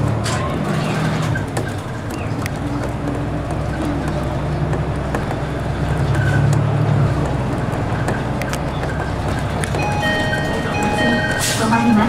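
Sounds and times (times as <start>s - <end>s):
bus engine running: 0.0s - 12.0s
electronic chime: 9.8s - 12.0s.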